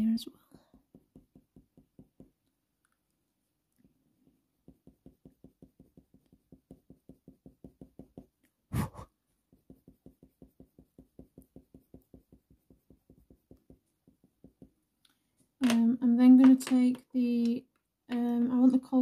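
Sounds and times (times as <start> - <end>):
pencil scratching on paper: 4.6 - 14.7.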